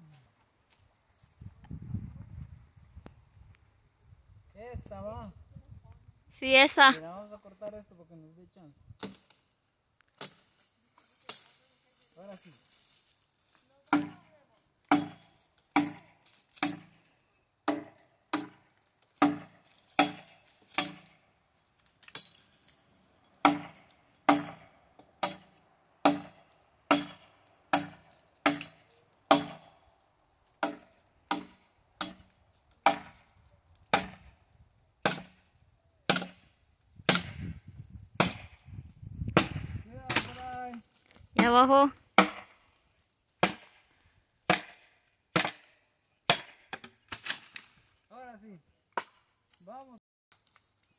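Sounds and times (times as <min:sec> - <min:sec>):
machete chopping wood: 0:09.0 - 0:09.4, 0:10.2 - 0:10.5, 0:13.9 - 0:14.2, 0:14.9 - 0:17.0, 0:17.6 - 0:21.2, 0:23.4 - 0:29.8, 0:30.6 - 0:33.3, 0:33.9 - 0:34.2, 0:35.0 - 0:35.4, 0:36.1 - 0:37.6, 0:38.2 - 0:38.6, 0:39.4 - 0:40.5, 0:41.4 - 0:42.6, 0:43.4 - 0:43.9, 0:44.5 - 0:47.8, 0:48.9 - 0:49.3.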